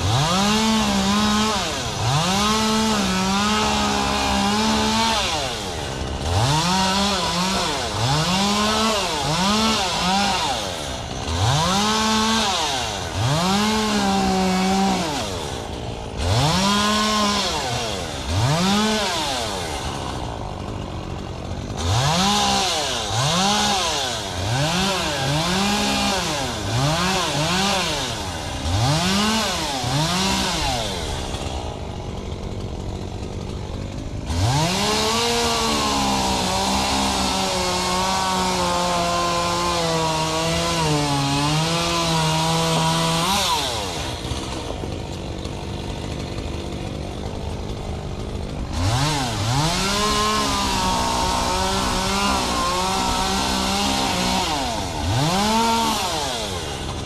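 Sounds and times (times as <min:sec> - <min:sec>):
chainsaw revving: 0:00.0 - 0:57.0.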